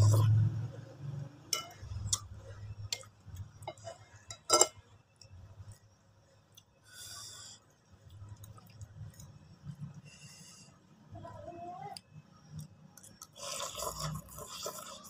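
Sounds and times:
close-up eating sounds: 0.0 - 4.5, 5.1 - 15.0
cutlery clinking on ceramic plate: 3.7 - 4.8.

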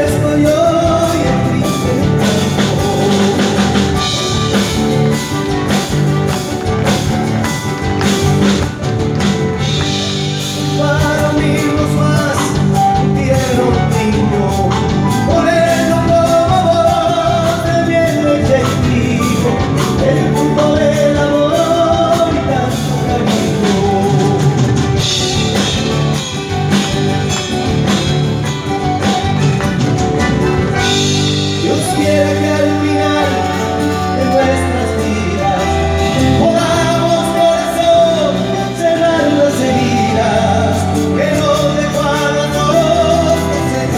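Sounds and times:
man singing lead vocal: 0.0 - 8.8, 9.6 - 26.5, 30.7 - 43.9
live folk band playing: 0.0 - 43.9.

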